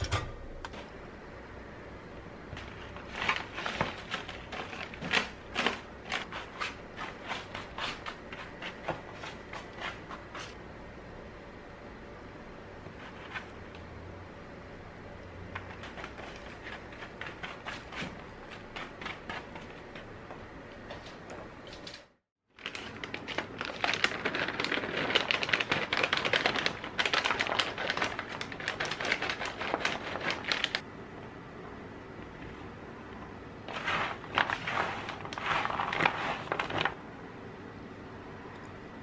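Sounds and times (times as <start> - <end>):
plastic bag crinkling: 22.6 - 30.8, 33.7 - 37.0.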